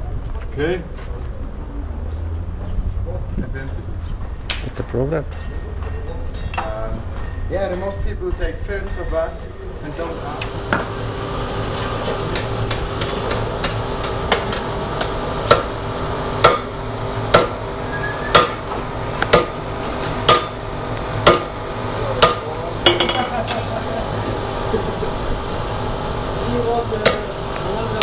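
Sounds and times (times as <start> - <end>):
anvil ringing: 5.3 - 9.3, 18.3 - 18.6, 20.2 - 20.6
hammer striking steel anvil: 12.4 - 15.8, 16.4 - 17.6, 18.3 - 18.7, 19.3 - 19.6, 20.2 - 20.6, 21.2 - 21.6, 22.2 - 23.3.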